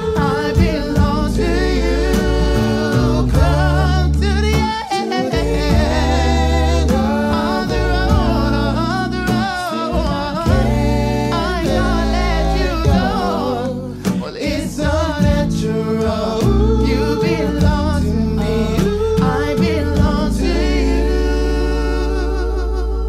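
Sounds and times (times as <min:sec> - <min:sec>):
double bass: 0:00.0 - 0:23.0
male vocal group singing: 0:00.0 - 0:23.0.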